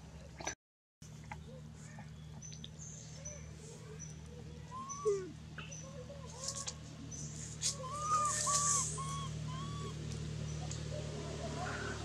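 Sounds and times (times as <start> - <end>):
birds calling: 1.2 - 12.0
dry leaves rustling and crunching: 7.5 - 9.0.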